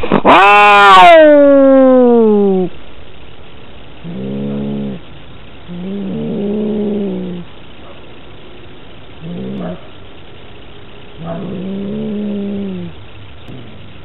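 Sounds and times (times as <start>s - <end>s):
cat yowling: 0.2s - 2.7s.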